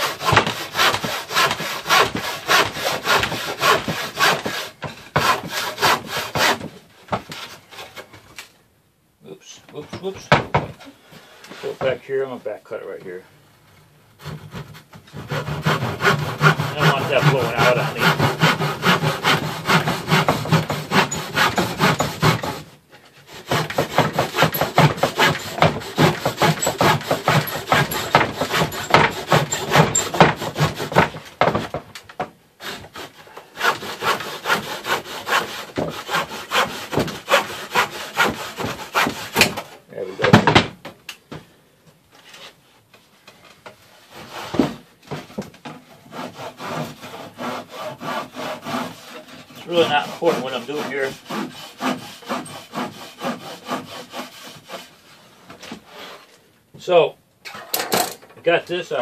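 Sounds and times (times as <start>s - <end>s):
handsaw cutting wood: 0.0s - 6.7s, 14.2s - 31.8s, 32.6s - 39.8s, 44.1s - 45.3s, 45.9s - 56.3s.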